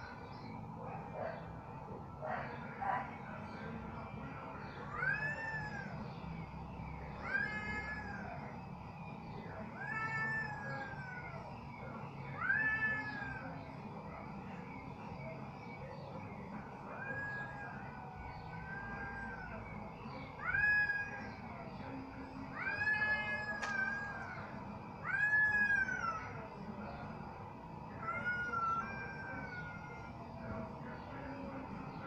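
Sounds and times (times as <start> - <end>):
cat yowling: 4.8 - 6.0, 7.0 - 8.6, 9.6 - 11.5, 12.3 - 13.6, 16.8 - 19.6, 20.3 - 21.6, 22.2 - 26.5, 27.9 - 30.2.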